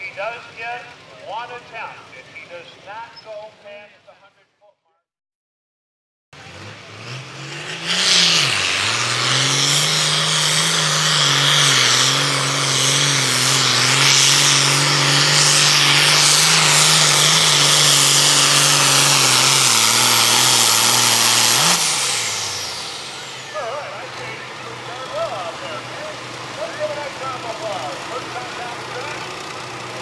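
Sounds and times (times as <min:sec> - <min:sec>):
tractor diesel engine under load: 0:00.0 - 0:04.0, 0:06.4 - 0:30.0
loud hiss: 0:10.0 - 0:23.2.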